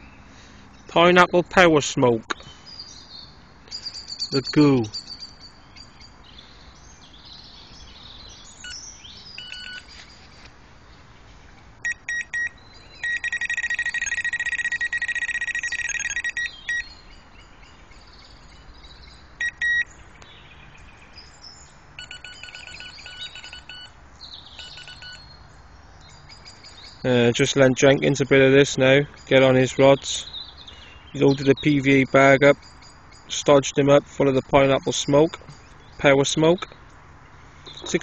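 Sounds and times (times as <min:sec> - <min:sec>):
electronic bite alarm beeping: 0:09.4 - 0:09.9, 0:11.8 - 0:16.9, 0:19.4 - 0:19.9, 0:22.0 - 0:24.0, 0:24.6 - 0:25.3.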